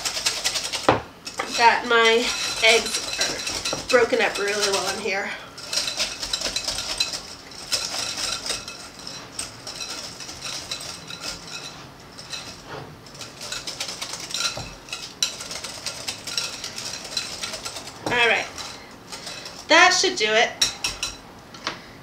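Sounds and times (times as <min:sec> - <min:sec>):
whisk clicking against glass bowl: 0:13.2 - 0:19.6, 0:20.6 - 0:21.2.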